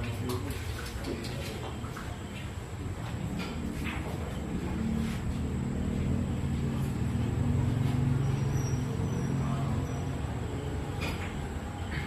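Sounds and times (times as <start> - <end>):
vehicle engine passing: 3.4 - 12.0.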